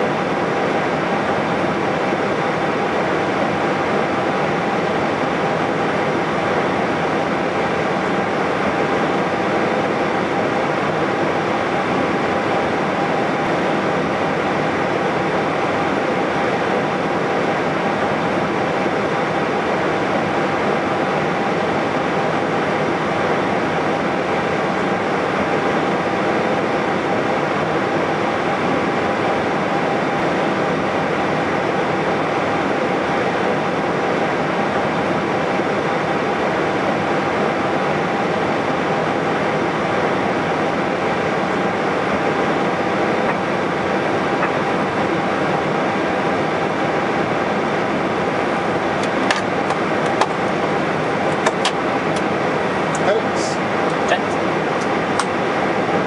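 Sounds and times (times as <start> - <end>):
cockpit ventilation hiss: 0.0 - 56.0
jet engines idling: 0.0 - 56.0.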